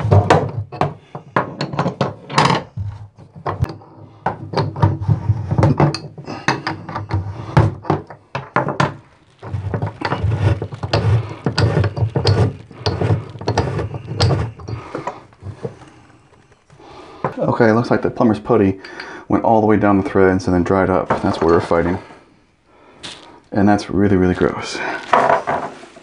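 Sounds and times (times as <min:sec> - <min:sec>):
metal tools clicking and knocking: 0:00.2 - 0:02.8, 0:05.6 - 0:07.2
rough metal scraping: 0:03.6 - 0:18.7.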